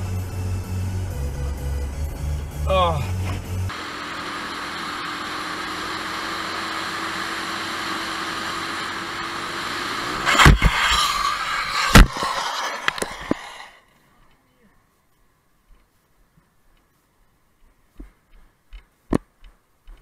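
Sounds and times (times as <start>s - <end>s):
motorcycle engine: 0.0s - 13.7s
scraping noise: 10.1s - 13.8s
wind rush: 10.2s - 13.8s.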